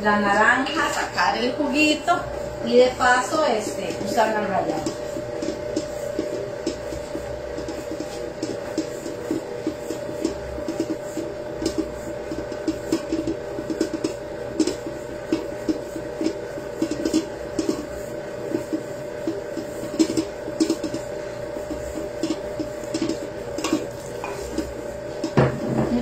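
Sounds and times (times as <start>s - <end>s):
stand mixer motor hum: 0.0s - 26.0s
beater knocking in steel bowl: 3.2s - 26.0s.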